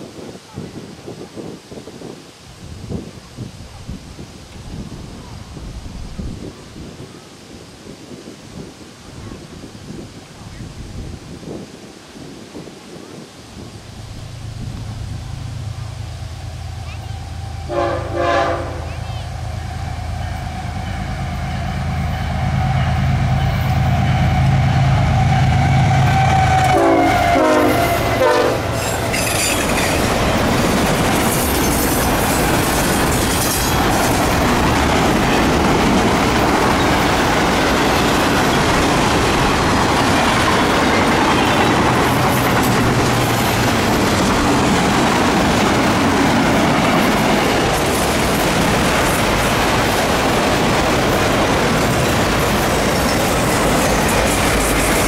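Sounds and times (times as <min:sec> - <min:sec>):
train wheels rolling on rail: 0:07.8 - 0:55.0
diesel locomotive engine rumbling: 0:13.5 - 0:55.0
train horn: 0:15.6 - 0:29.4.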